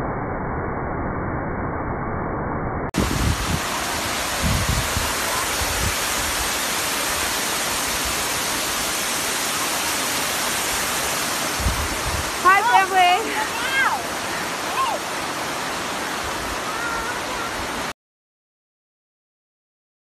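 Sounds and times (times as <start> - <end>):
waterfall roaring: 3.0 - 17.9.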